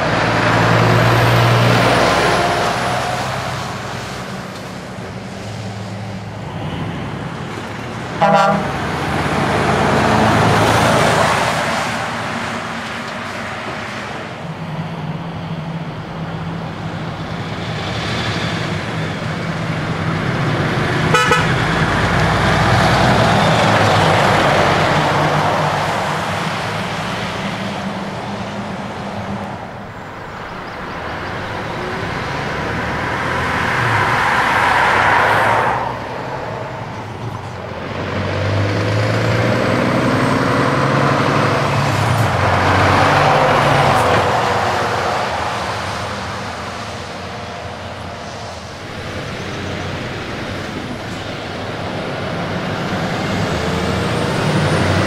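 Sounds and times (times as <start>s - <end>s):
diesel trucks driving past: 0.0s - 55.0s
truck accelerating past: 0.0s - 55.0s
truck horn toot: 8.2s - 8.9s, 21.0s - 21.8s.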